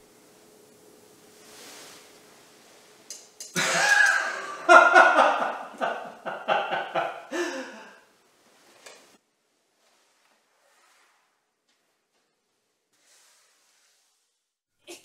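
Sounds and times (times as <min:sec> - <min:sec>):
man laughing loudly: 0:03.6 - 0:08.0.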